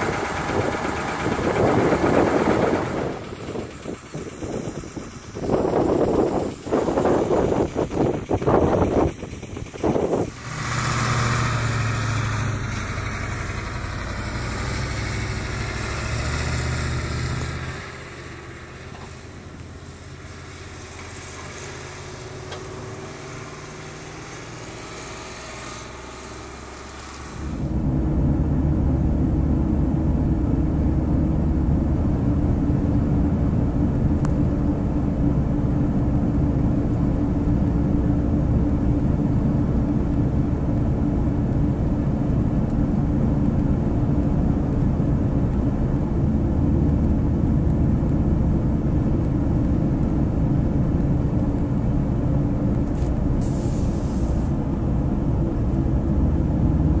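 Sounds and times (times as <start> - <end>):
road and engine rumble: 0.0 - 57.0
brief hiss: 53.4 - 54.6.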